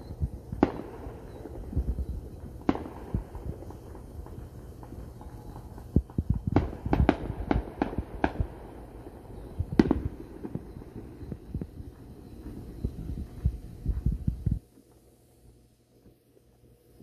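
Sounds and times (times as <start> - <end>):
fireworks bangs: 0.0 - 14.6
low irregular thumping: 9.6 - 14.7.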